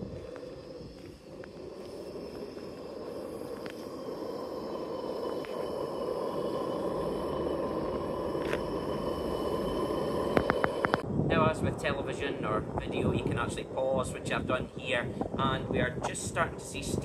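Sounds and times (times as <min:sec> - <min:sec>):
gas burner rushing: 0:00.0 - 0:15.4
wind on microphone: 0:00.0 - 0:17.0.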